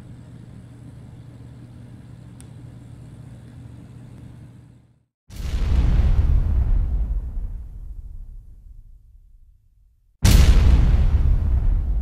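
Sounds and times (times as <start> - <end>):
low room hum: 0.0 - 5.1
faint click: 2.4 - 2.6
boom outro sound effect: 5.3 - 9.6, 10.2 - 12.0.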